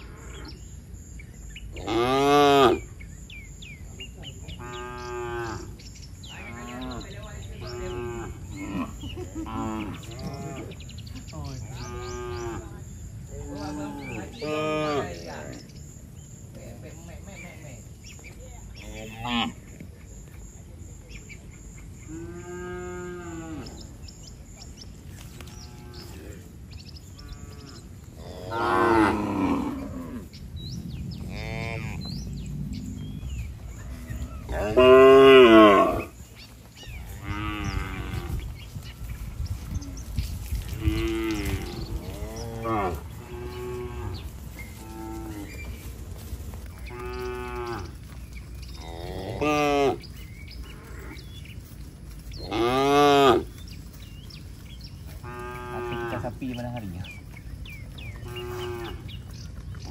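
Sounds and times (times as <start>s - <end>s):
cattle mooing: 11.8s - 12.7s, 27.2s - 30.3s, 31.2s - 33.0s, 33.9s - 36.1s, 40.8s - 45.5s, 55.2s - 56.4s.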